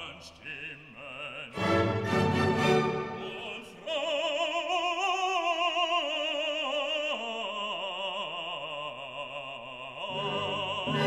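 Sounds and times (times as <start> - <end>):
operatic singing with vibrato: 0.0 - 11.0.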